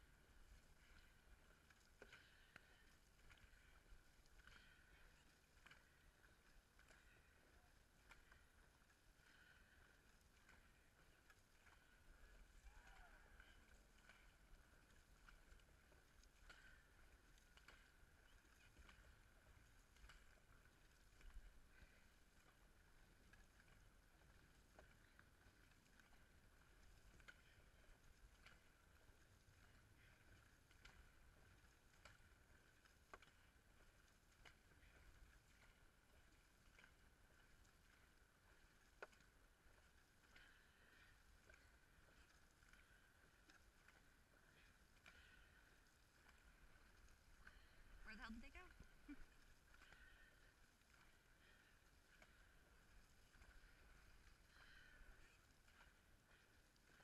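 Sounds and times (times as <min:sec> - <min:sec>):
soft paddle strokes: 0:00.0 - 0:57.0.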